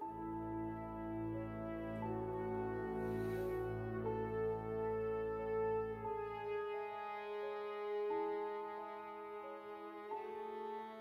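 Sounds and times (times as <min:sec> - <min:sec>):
held low drone: 0:00.0 - 0:11.0
slow instrumental melody: 0:00.0 - 0:11.0.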